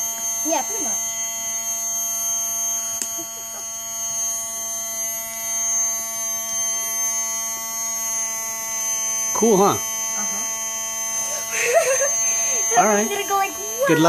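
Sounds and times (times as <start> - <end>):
water pump motor buzzing: 0.0 - 14.0.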